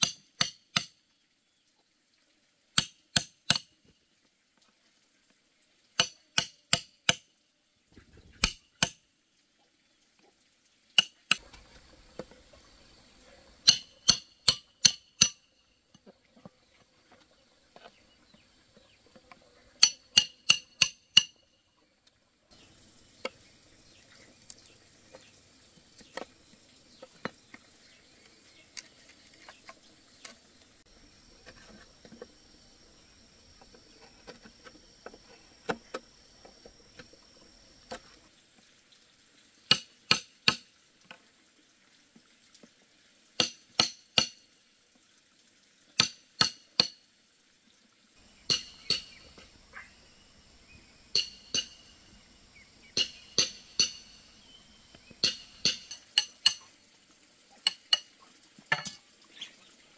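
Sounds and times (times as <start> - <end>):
wrench striking steel rod: 0.0 - 1.0, 13.6 - 15.4, 19.8 - 21.4, 48.5 - 49.3, 51.1 - 51.9, 53.0 - 54.2, 55.2 - 56.6
handling taps and scrapes: 31.4 - 32.3.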